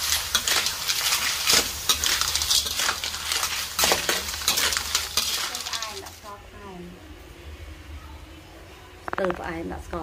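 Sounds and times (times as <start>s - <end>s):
shells scraping in metal wok: 0.0s - 6.4s
frying sizzle: 0.0s - 6.6s.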